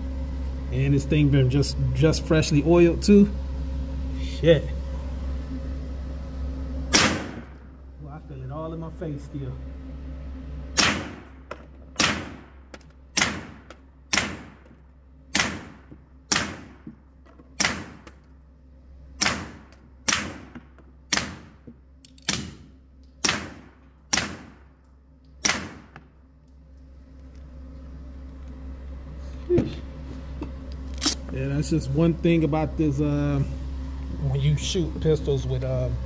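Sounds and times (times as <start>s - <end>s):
suppressed pistol shots: 6.9s - 7.5s, 10.8s - 11.2s, 12.0s - 12.5s, 13.2s - 14.6s, 15.3s - 16.7s, 23.2s - 24.6s, 25.4s - 26.0s.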